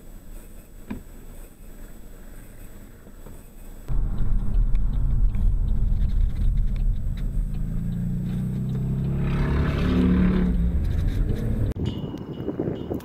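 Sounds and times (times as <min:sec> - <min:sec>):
car engine rumbling: 0:03.8 - 0:11.8.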